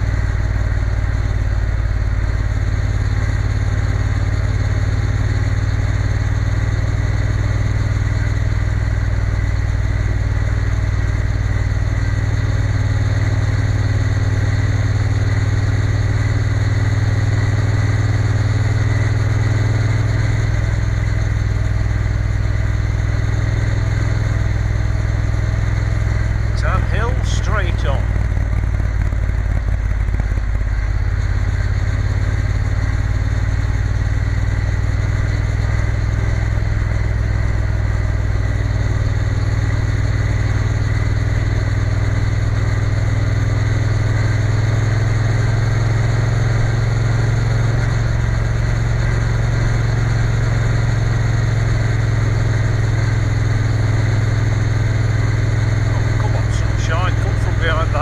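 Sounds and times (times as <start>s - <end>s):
motorcycle engine cruising: 0.0s - 58.0s.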